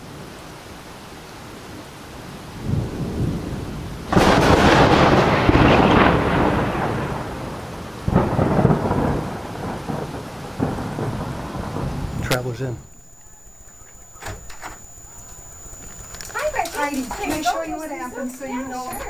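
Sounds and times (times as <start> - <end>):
thunder cracking and rumbling: 2.5 - 17.1.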